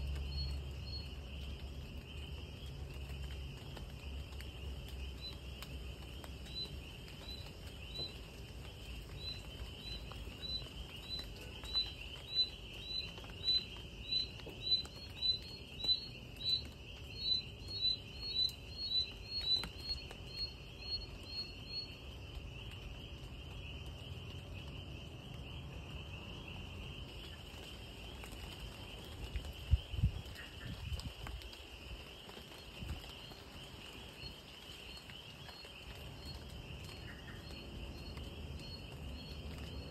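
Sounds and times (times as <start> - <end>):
insects trilling: 0.0 - 39.9
light rain pattering: 0.0 - 39.9
repeated chirping call: 9.0 - 22.0.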